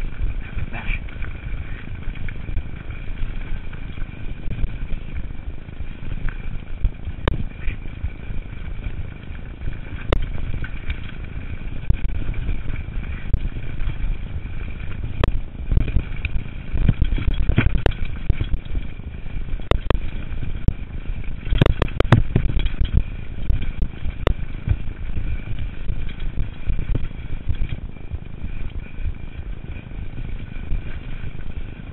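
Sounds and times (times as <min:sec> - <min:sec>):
bike clattering over bumps: 0:00.0 - 0:31.9
wind and tyres rumbling: 0:00.0 - 0:31.9.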